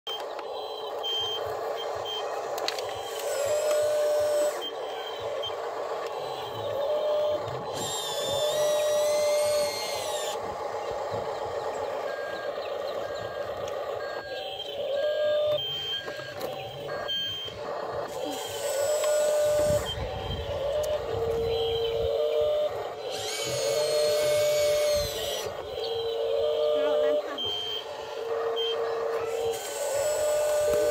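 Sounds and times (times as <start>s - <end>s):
short electronic beeps: 0.1s - 5.6s, 12.0s - 17.7s, 25.7s - 29.0s
toy electric motors whining: 0.1s - 30.9s.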